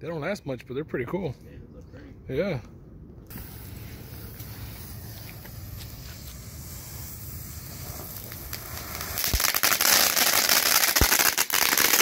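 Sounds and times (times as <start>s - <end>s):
firework fountain hissing and crackling: 3.3s - 12.0s.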